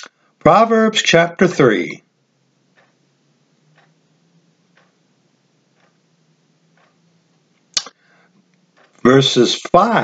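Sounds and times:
clock ticking: 0:00.0 - 0:08.0, 0:08.6 - 0:10.0
low hum: 0:02.1 - 0:08.8
sharp click: 0:07.7 - 0:08.0.

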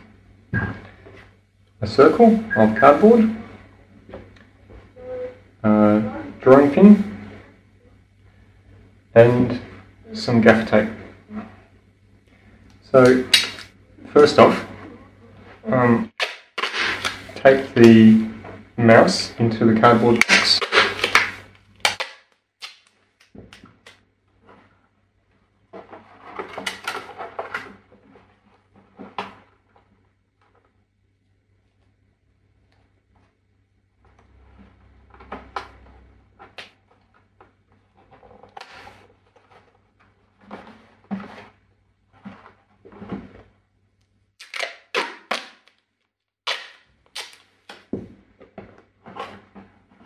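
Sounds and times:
tape stretching on cardboard: 0:16.1 - 0:17.4, 0:19.8 - 0:24.0, 0:44.4 - 0:45.8, 0:46.4 - 0:47.9.

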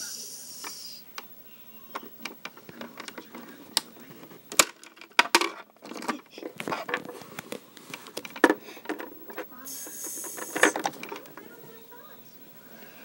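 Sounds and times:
plastic toys clicking and knocking: 0:01.9 - 0:11.5.

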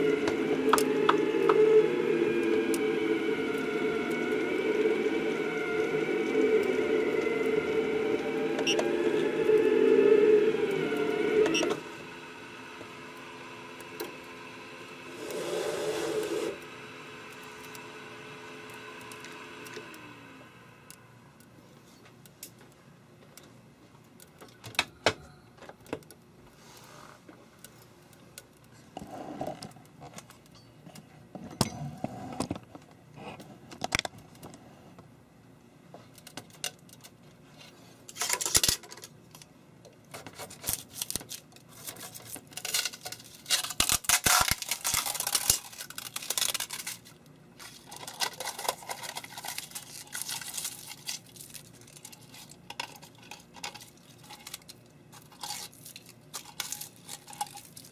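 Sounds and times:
plastic sheet crinkling and scraping: 0:40.2 - 0:57.9.

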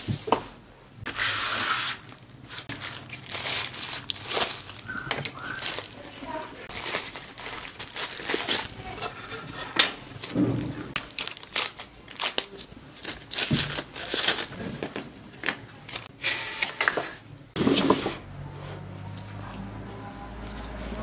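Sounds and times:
plastic packaging crinkling: 0:01.8 - 0:14.8.

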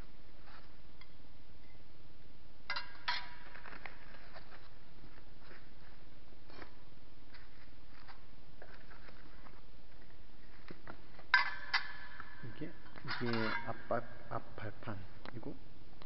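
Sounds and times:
metal plates clinking: 0:02.7 - 0:03.8, 0:11.2 - 0:14.0.

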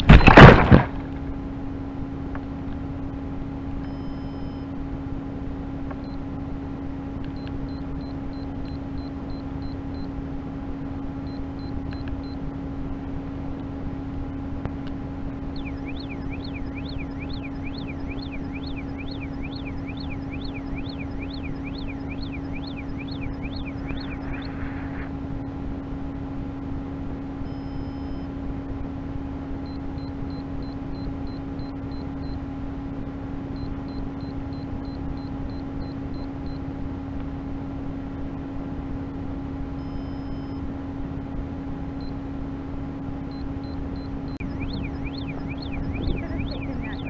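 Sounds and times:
steady hum: 0:00.0 - 0:47.0
warbling siren: 0:15.4 - 0:26.2, 0:43.4 - 0:47.0
long held tones: 0:15.5 - 0:25.6, 0:43.3 - 0:47.0.

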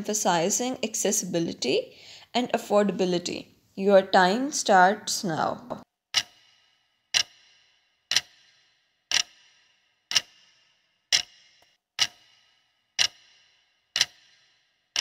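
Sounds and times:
clock ticking with ringing tail: 0:06.1 - 0:15.0.

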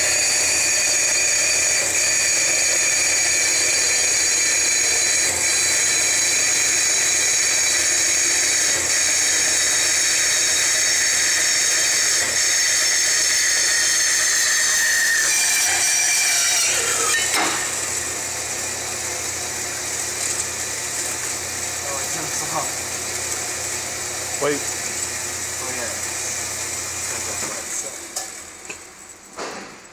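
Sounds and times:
band saw cutting steel: 0:00.0 - 0:28.8
metal offcut clunk: 0:29.3 - 0:29.9.

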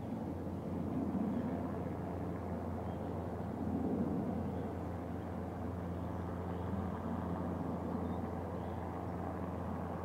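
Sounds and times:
distant helicopter drone: 0:00.0 - 0:10.0.

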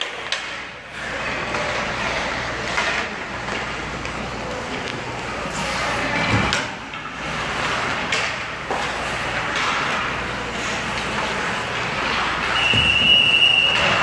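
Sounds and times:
stick and puck clacks: 0:00.0 - 0:05.2, 0:06.3 - 0:14.0
skate and rink noise: 0:00.0 - 0:14.0
high whistle blast: 0:12.5 - 0:14.0.

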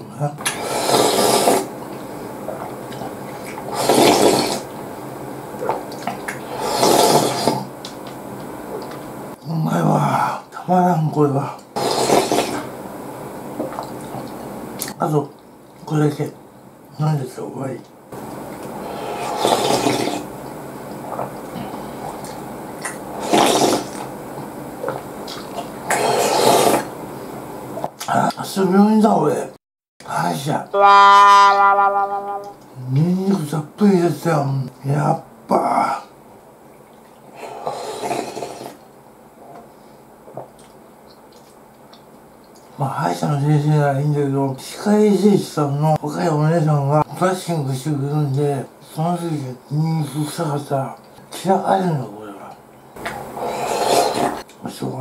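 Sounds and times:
person slurping broth: 0:00.4 - 0:01.7, 0:03.4 - 0:04.7, 0:05.6 - 0:07.7, 0:11.8 - 0:12.7, 0:18.7 - 0:20.3, 0:21.0 - 0:24.1, 0:24.8 - 0:26.9, 0:37.3 - 0:38.8, 0:53.3 - 0:54.4.

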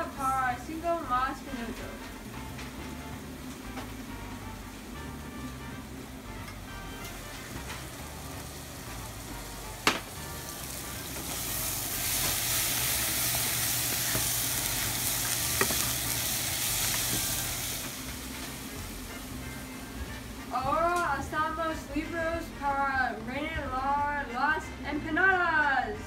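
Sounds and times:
meat sizzling in a saucepan: 0:02.0 - 0:21.1
wooden spoon stirring: 0:13.9 - 0:16.1.

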